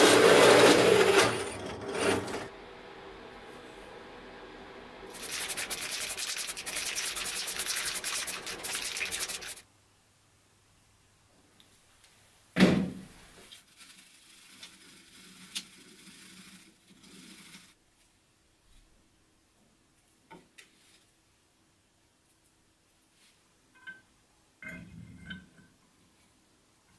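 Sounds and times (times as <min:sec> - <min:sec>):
sanding steel: 0:05.1 - 0:09.6, 0:13.6 - 0:17.7.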